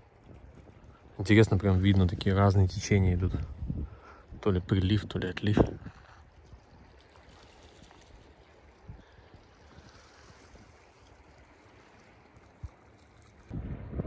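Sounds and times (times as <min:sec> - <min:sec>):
seawater washing along shore: 0:00.0 - 0:14.0
low rumble: 0:13.5 - 0:14.0.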